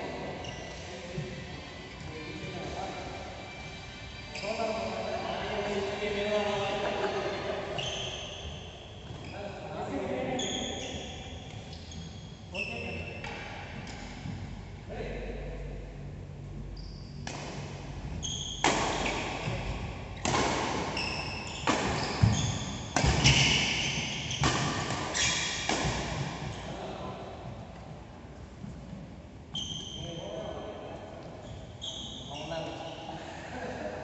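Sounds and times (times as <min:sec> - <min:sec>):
shoes squeaking on court: 0:04.4 - 0:04.8, 0:07.8 - 0:09.4, 0:10.3 - 0:14.1, 0:18.0 - 0:20.3, 0:20.9 - 0:25.7, 0:29.5 - 0:33.0
rackets striking shuttlecock: 0:18.5 - 0:19.5, 0:20.2 - 0:23.8, 0:24.4 - 0:26.3.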